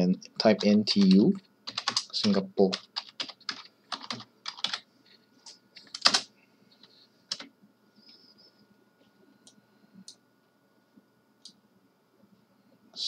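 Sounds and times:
faint high hum: 0:00.0 - 0:13.0
computer keyboard clicks: 0:01.0 - 0:04.8, 0:05.8 - 0:06.3.

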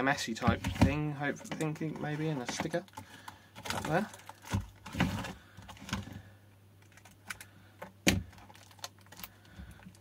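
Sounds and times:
plastic casing clicks and knocks: 0:06.8 - 0:09.3.

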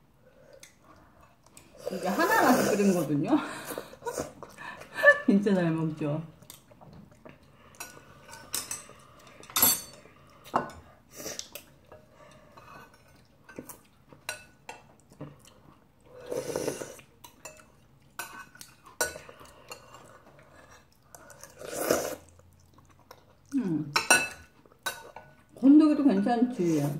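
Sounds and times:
utensils clinking on ceramic bowls: 0:07.8 - 0:10.8, 0:24.0 - 0:26.5
slurp: 0:21.3 - 0:22.4.

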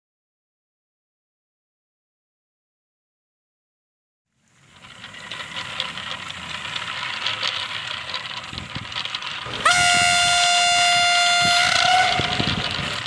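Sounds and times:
model train rattling: 0:04.3 - 0:13.0
train horn blast: 0:09.6 - 0:13.0.

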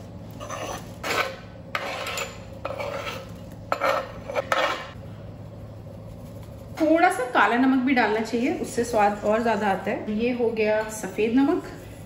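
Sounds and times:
metal spoon scraping wooden board: 0:00.3 - 0:05.0.

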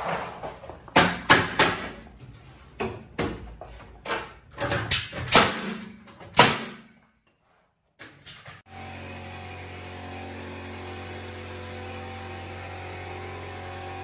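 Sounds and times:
nail gun firing into wood: 0:04.9 - 0:06.8.

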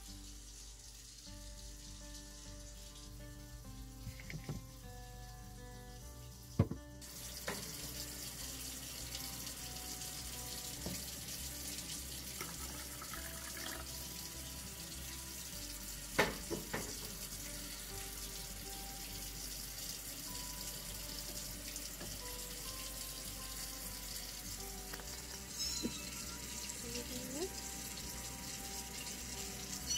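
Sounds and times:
tap water pouring into cup: 0:12.2 - 0:14.1, 0:24.6 - 0:26.2.

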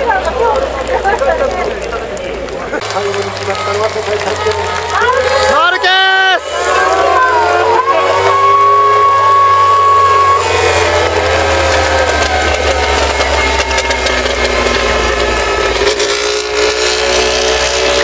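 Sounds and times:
trackside crowd noise: 0:00.0 - 0:18.0
race motorbike engine low revs: 0:02.8 - 0:18.0
high horn tone: 0:05.2 - 0:17.0.

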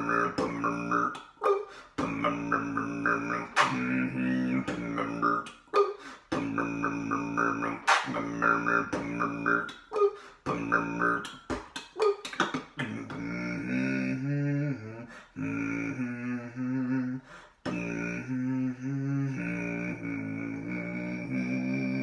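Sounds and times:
beatboxing drum hits and clicks: 0:00.0 - 0:01.3, 0:02.0 - 0:04.0, 0:04.6 - 0:13.3.

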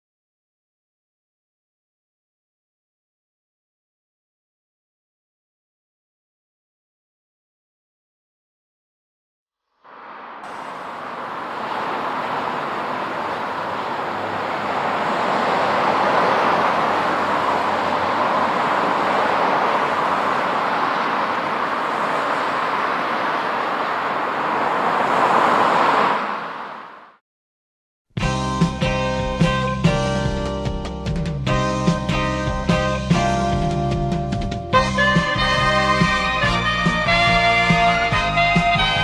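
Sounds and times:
cars passing on road: 0:09.8 - 0:27.2, 0:31.2 - 0:39.0.

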